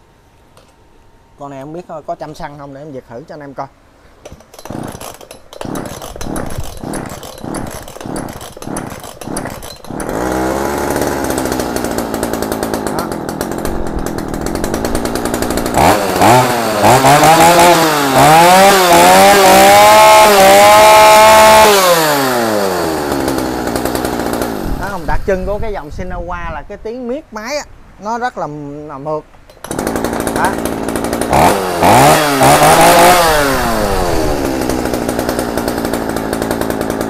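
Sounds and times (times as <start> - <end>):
chainsaw cord pulls: 4.2 - 25.4, 29.5 - 37.0
chainsaw engine idling and revving: 4.2 - 25.8, 29.6 - 37.0.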